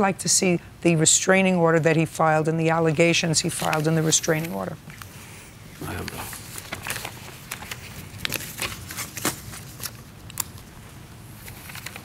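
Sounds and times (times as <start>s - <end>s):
paper shuffling and rustling: 3.4s - 5.1s, 5.8s - 10.7s, 11.3s - 12.0s.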